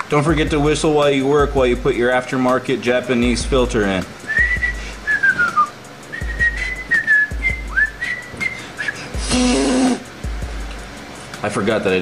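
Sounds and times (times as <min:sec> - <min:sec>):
man whistling: 0:04.2 - 0:10.0.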